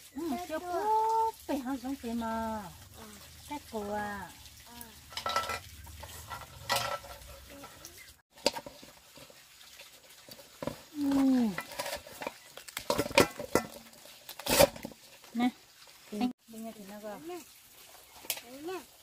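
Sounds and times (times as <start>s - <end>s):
utensil scraping cooking pot: 5.0s - 15.3s.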